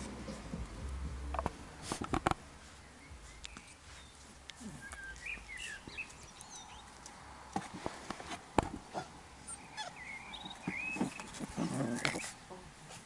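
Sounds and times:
sharp knocks and clicks: 1.3s - 2.4s
puppies scuffling: 9.8s - 13.0s.

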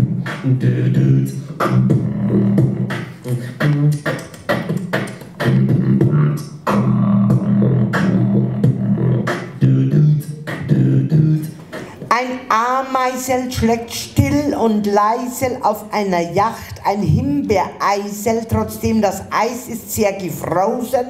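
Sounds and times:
low hummed bass line: 0.0s - 4.0s, 5.5s - 11.4s
beatboxing into a microphone: 0.0s - 21.0s.

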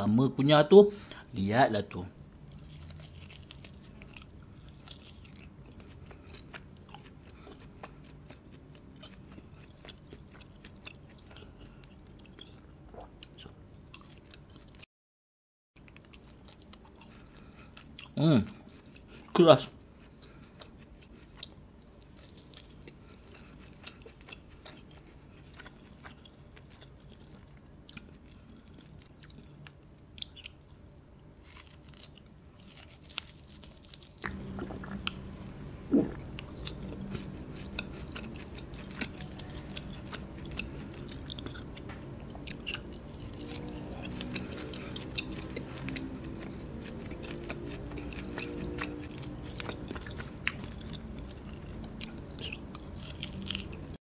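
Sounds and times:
low background hum: 0.0s - 14.8s, 15.8s - 54.0s
chewing meat: 2.1s - 14.9s, 15.8s - 54.0s
swallowing a drink: 34.3s - 35.3s.

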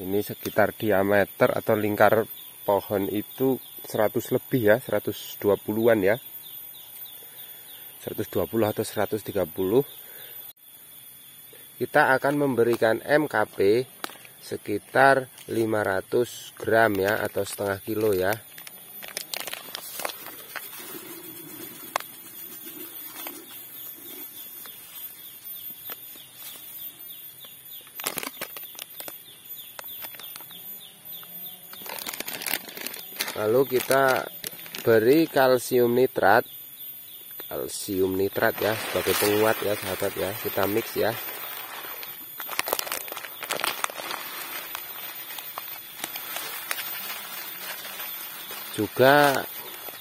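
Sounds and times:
plastic bag rustling: 17.1s - 25.0s, 31.8s - 35.0s, 38.2s - 50.0s
fertilizer granules pouring into bucket: 38.3s - 50.0s.

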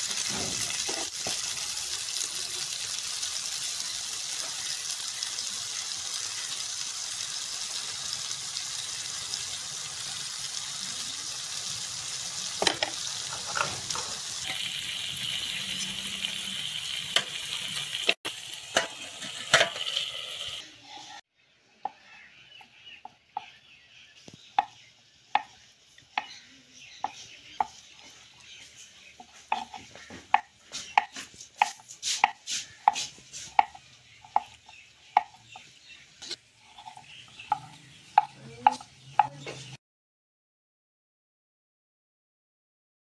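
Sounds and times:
knife chopping on wooden board: 29.4s - 34.6s.

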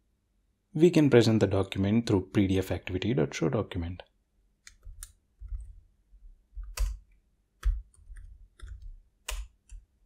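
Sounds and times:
keyboard typing clicks: 6.6s - 9.9s.

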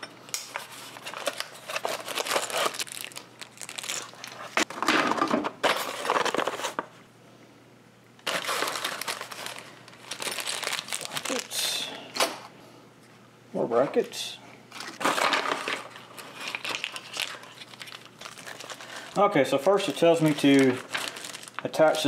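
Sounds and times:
plastic packaging crinkling and tearing: 0.5s - 4.7s, 5.8s - 6.9s, 8.2s - 11.6s, 14.7s - 22.0s.

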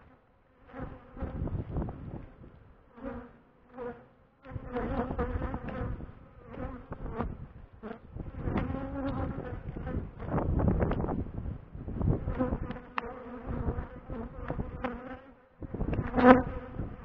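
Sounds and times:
honeybees buzzing: 2.8s - 11.2s, 12.1s - 17.0s.

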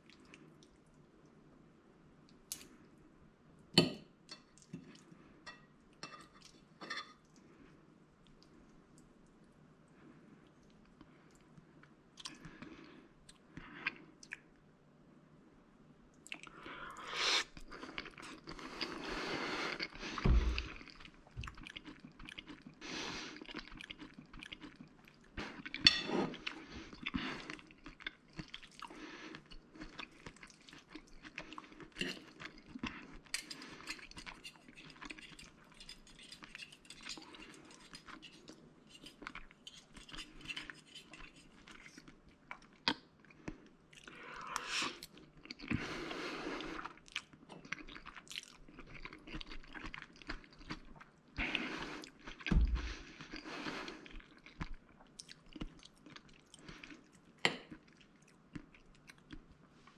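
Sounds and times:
cutlery scraping on plate: 5.5s - 7.2s, 25.8s - 26.1s, 33.3s - 41.6s
person chewing: 16.2s - 59.6s.

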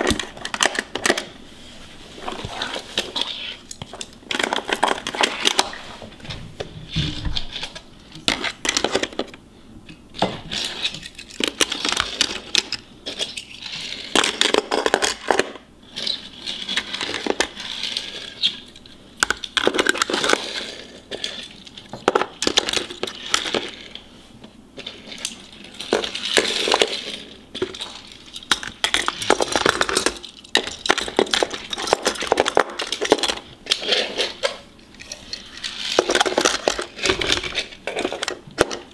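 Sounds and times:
toy cars clicking into plastic slots: 24.8s - 34.6s.

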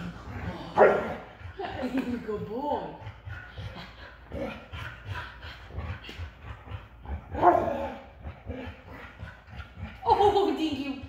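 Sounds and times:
dog barking: 0.8s - 1.2s.

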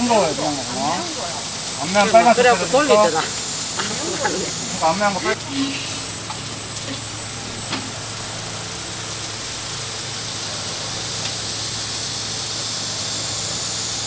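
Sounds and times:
chicken skewers sizzling on grill: 0.0s - 14.0s.

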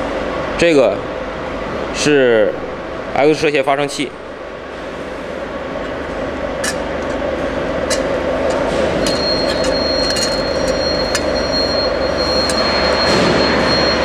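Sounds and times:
steady mechanical noise: 0.0s - 14.0s
thin high whine: 8.4s - 14.0s.

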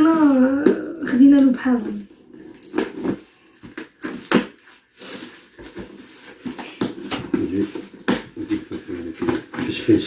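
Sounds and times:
cardboard box crackling: 0.0s - 10.0s
packaging rustling: 0.0s - 10.0s.

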